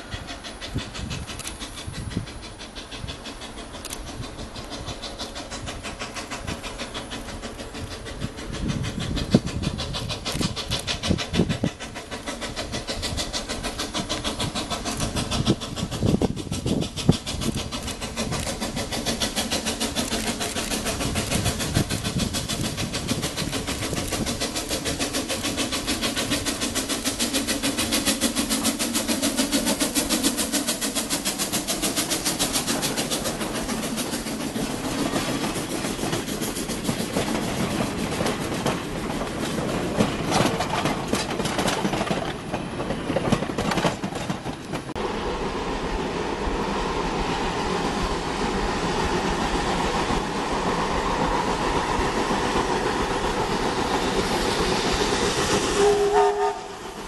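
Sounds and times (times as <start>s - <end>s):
steam locomotive exhaust beat: 0.0s - 57.0s
freight cars rumbling and clattering: 32.3s - 45.1s.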